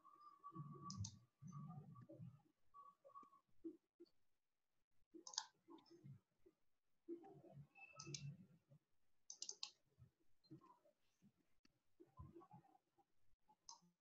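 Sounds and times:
scattered clicks: 0:05.2 - 0:05.5, 0:09.3 - 0:09.8.

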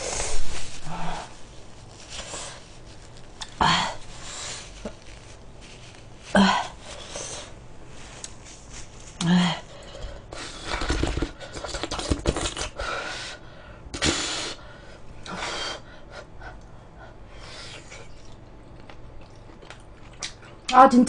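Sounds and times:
wet chewing: 0:17.6 - 0:20.7.

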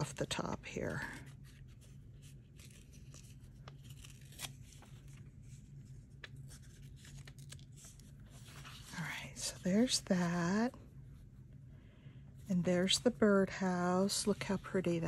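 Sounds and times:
steady low hum: 0:00.0 - 0:15.0
paper rustling and clicking: 0:01.6 - 0:08.8.

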